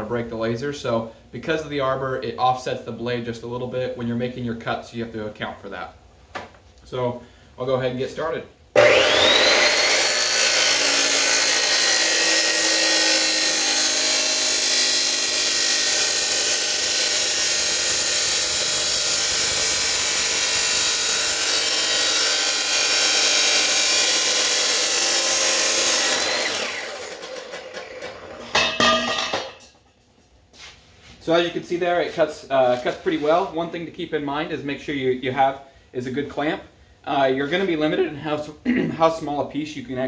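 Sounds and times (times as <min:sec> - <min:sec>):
grinding wheel cutting steel: 0:08.8 - 0:29.2.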